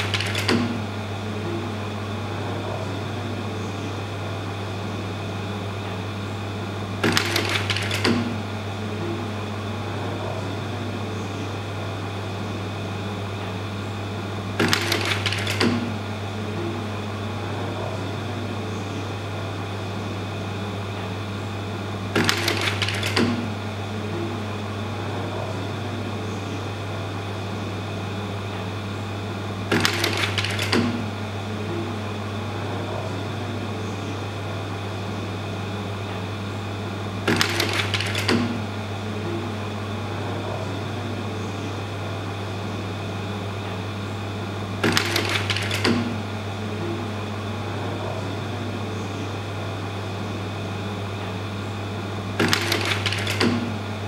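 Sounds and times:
slide-change mechanism clattering: 0:00.0 - 0:00.9, 0:07.0 - 0:08.4, 0:14.5 - 0:16.0, 0:22.1 - 0:23.6, 0:29.7 - 0:31.1, 0:37.2 - 0:38.7, 0:44.8 - 0:46.2, 0:52.4 - 0:53.8
slide projector fan hum: 0:00.0 - 0:54.0.

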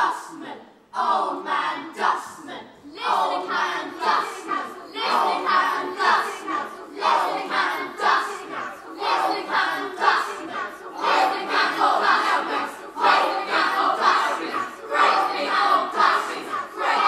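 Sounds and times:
young voices chanting: 0:01.0 - 0:17.0.

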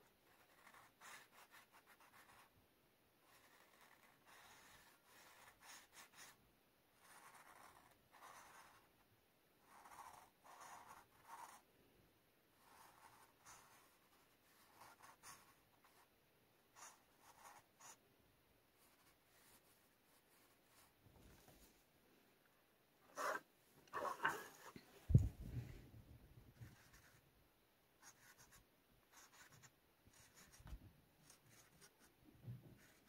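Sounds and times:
marker scratching on paper: 0:00.1 - 0:02.5, 0:03.2 - 0:06.4, 0:07.0 - 0:08.9, 0:09.6 - 0:11.6, 0:12.6 - 0:16.1, 0:16.7 - 0:18.0, 0:18.8 - 0:21.6, 0:23.1 - 0:24.8, 0:26.6 - 0:27.2, 0:28.0 - 0:32.1, 0:32.8 - 0:33.0.

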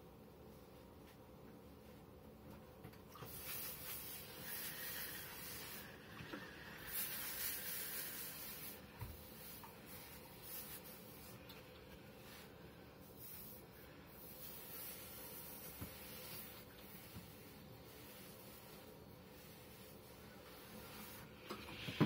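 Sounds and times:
iron rubbing over fabric: 0:03.2 - 0:22.0
steam iron hissing: 0:03.3 - 0:11.4.

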